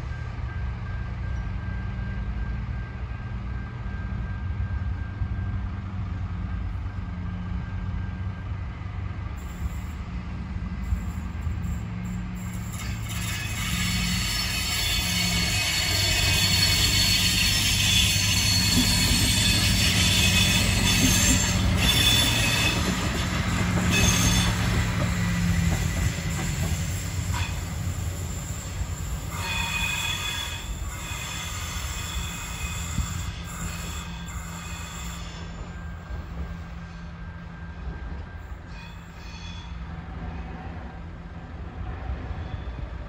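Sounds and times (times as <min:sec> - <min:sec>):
diesel railcar engine: 0:00.0 - 0:43.0
high-pitched wheel squeal: 0:10.8 - 0:36.0, 0:38.6 - 0:39.8.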